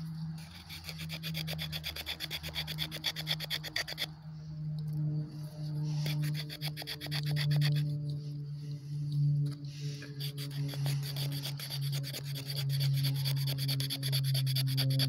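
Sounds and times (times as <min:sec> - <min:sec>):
steady low hum: 0:00.0 - 0:15.0
knife scraping wooden stick: 0:00.4 - 0:04.1, 0:05.8 - 0:08.0, 0:10.0 - 0:15.0.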